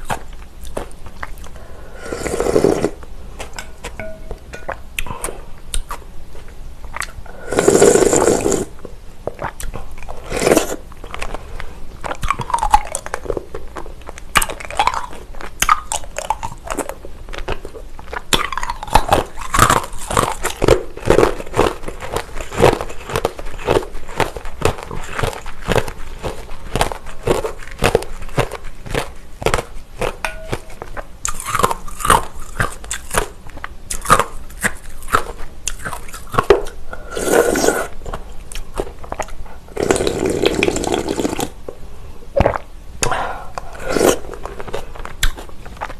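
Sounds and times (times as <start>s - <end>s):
person slurping soup: 1.6s - 3.6s, 7.3s - 8.8s, 10.2s - 10.9s, 36.9s - 38.0s, 39.7s - 41.6s, 42.4s - 44.9s
crisp crunching and chewing: 9.2s - 41.6s, 42.4s - 45.9s.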